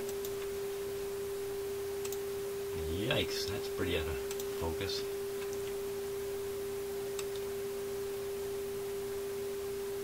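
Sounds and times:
steady test tone from radio speaker: 0.7 - 7.0.

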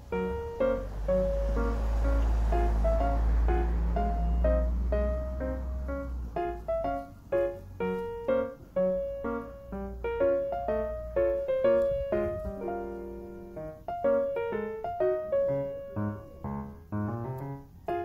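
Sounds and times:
light piano tune: 0.0 - 18.0.

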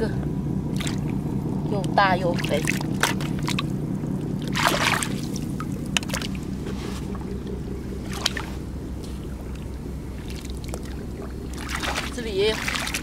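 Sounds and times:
steady low drone: 0.0 - 13.0
boots splashing in seawater: 0.7 - 1.1, 2.4 - 3.7, 4.4 - 7.3, 8.0 - 9.3, 10.1 - 13.0
small clicks and drips: 2.6 - 13.0.

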